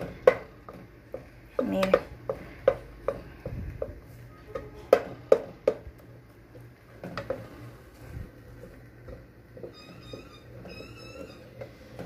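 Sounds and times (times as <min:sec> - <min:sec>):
wooden spoon stirring mashed potato: 0:00.0 - 0:12.0.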